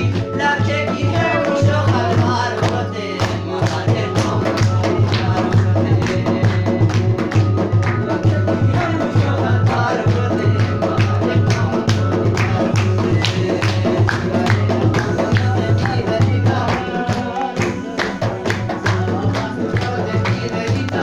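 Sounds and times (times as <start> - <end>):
hand drum: 0.0 - 21.0
keyboard: 0.0 - 21.0
man singing: 0.0 - 21.0
people clapping along: 0.0 - 21.0.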